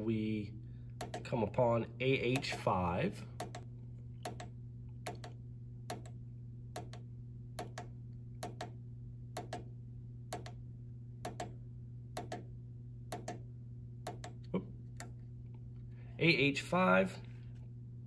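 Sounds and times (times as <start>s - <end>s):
steady low hum: 0.0s - 18.0s
push-button clicking: 1.0s - 1.3s, 3.4s - 3.6s, 4.2s - 6.2s, 7.6s - 8.8s, 9.4s - 9.7s, 13.1s - 13.4s, 14.1s - 14.4s.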